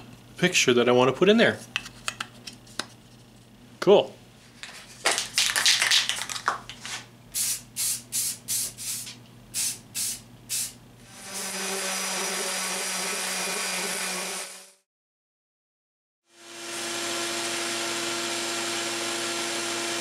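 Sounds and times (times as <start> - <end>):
spray paint can bursts: 7.4 - 10.8
orbital sander on wood: 11.1 - 14.7, 16.4 - 20.0.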